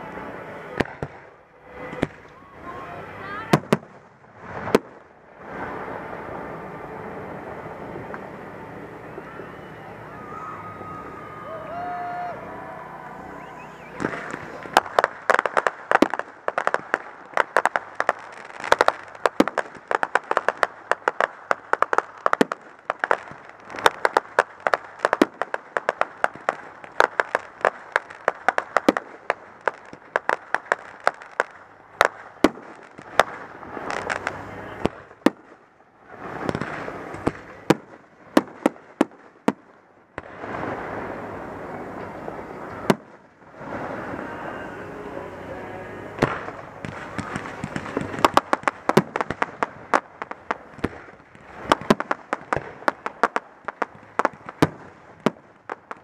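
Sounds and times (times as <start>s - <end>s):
fireworks bangs and pops: 0.1s - 2.6s, 3.4s - 9.5s, 13.1s - 44.4s, 46.1s - 56.0s.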